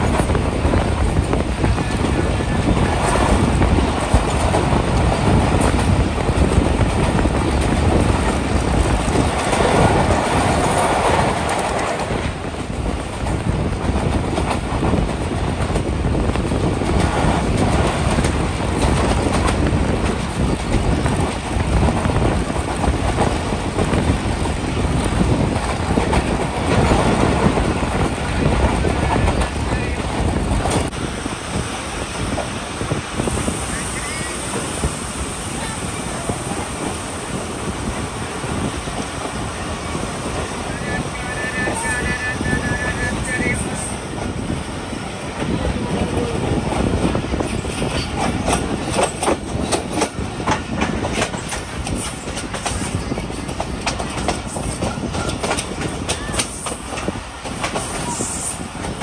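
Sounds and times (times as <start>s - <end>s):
train rumble: 0.0s - 59.0s
train wheels clattering: 46.2s - 59.0s.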